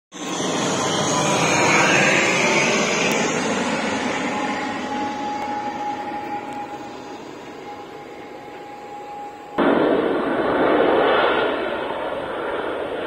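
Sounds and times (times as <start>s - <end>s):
propeller airliner passing low: 0.1s - 13.0s
thin steady whine: 0.2s - 13.0s.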